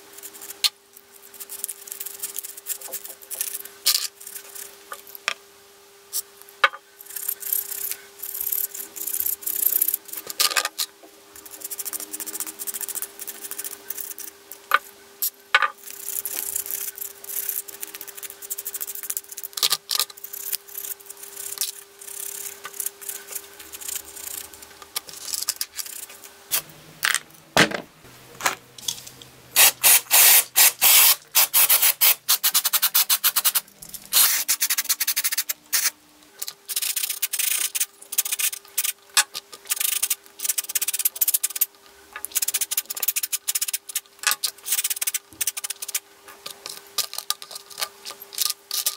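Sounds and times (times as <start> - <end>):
small metal parts clicking: 1.3 - 5.3, 6.6 - 14.8, 15.6 - 27.2, 28.8 - 48.9
aerosol spray hissing: 29.6 - 33.5.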